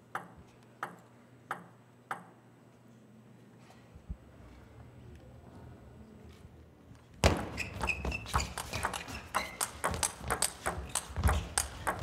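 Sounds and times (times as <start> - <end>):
shoe squeak on floor: 7.3 - 9.9.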